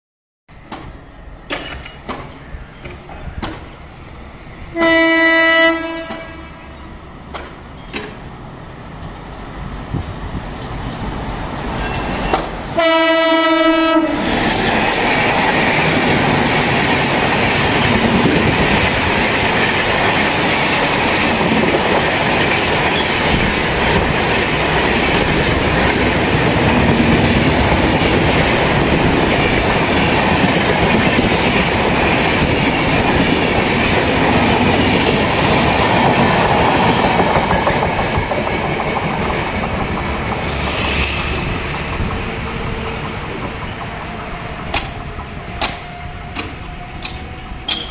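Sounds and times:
train rumbling past: 0.5s - 47.9s
wheels clattering over rail joints: 0.6s - 4.2s, 14.3s - 47.9s
locomotive horn: 4.7s - 6.7s, 12.7s - 14.3s.

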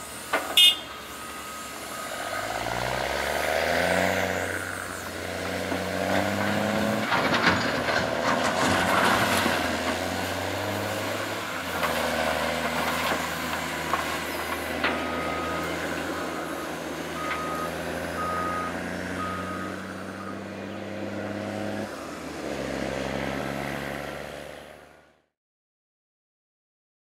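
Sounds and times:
heavy diesel engines running: 0.0s - 25.2s
backup alarm beeping: 0.6s - 2.7s, 17.2s - 20.4s.

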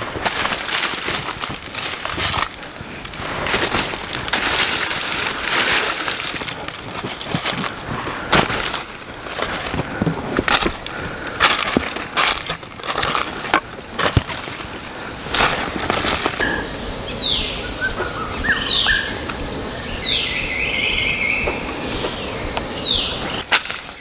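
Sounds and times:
footsteps crunching through leaves: 0.0s - 17.3s
high-pitched insect drone: 16.0s - 23.5s.

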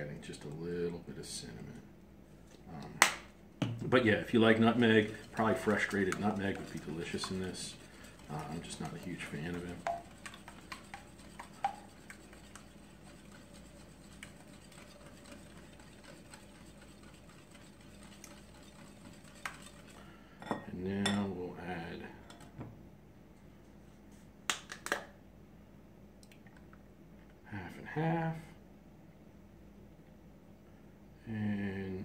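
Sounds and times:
whisk beating in glass bowl: 3.9s - 20.1s.

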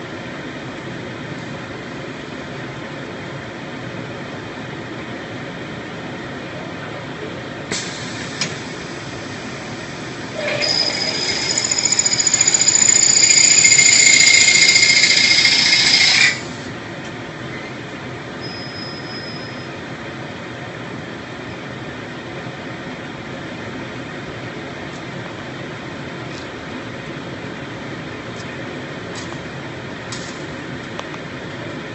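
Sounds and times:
high-pitched whine with hiss: 7.7s - 16.7s.

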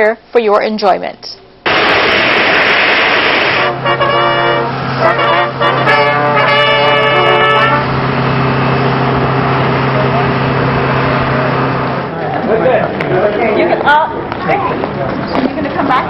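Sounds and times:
jet aircraft rush: 1.7s - 12.2s.

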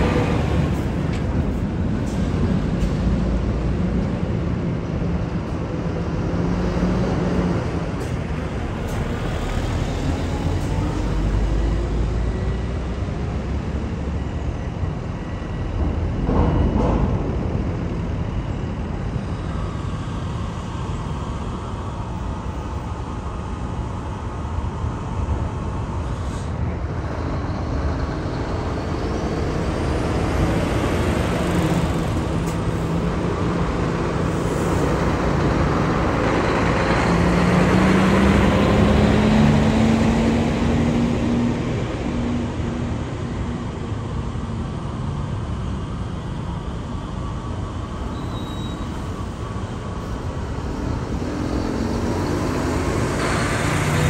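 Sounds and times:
diesel truck engines running: 0.0s - 48.1s, 48.8s - 54.0s
truck accelerating close by: 27.0s - 43.7s, 49.9s - 54.0s.

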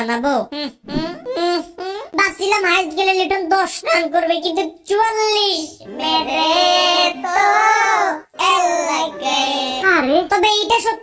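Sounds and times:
child singing held notes: 5.9s - 9.9s.

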